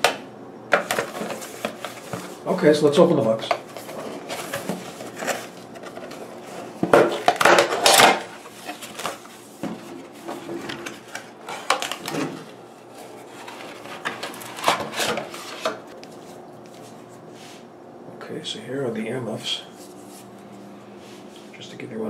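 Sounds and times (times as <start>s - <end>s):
cardboard scraping and rustling: 0.7s - 17.6s.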